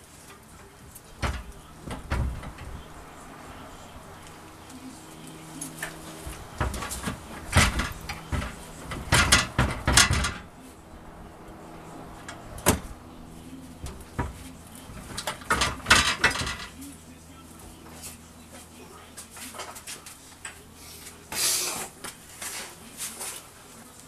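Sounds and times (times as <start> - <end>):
metal clunks knocks and scrapes: 1.1 - 3.2, 5.6 - 10.6, 12.1 - 13.0, 13.8 - 16.9.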